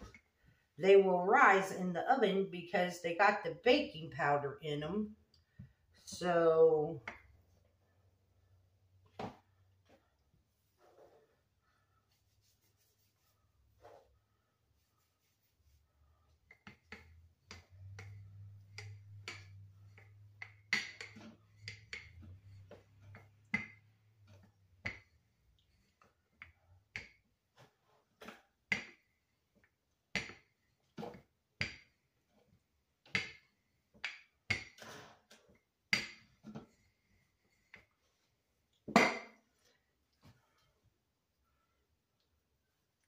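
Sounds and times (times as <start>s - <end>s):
rolling pin clicking and knocking: 16.5s - 25.2s.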